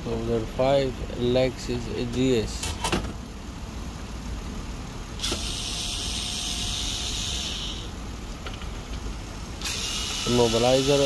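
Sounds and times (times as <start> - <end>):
electric screwdriver whirring: 5.2 - 7.8, 9.6 - 10.3.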